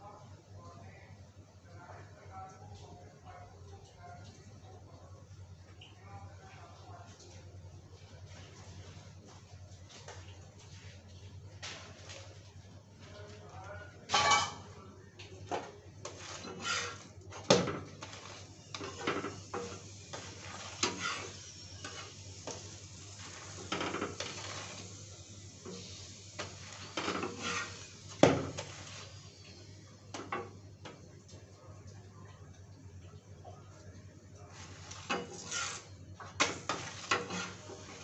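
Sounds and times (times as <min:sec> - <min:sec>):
spatula scraping on iron griddle: 0:16.0 - 0:29.3, 0:34.5 - 0:38.0.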